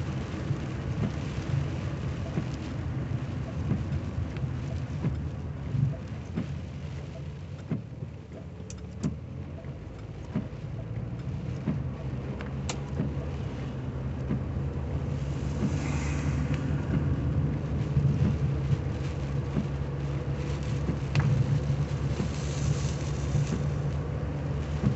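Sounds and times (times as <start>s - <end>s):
car engine and road rumble: 0.0s - 24.9s
rain and wipers clicking on windshield: 0.0s - 24.9s
passing car whoosh: 14.2s - 19.9s.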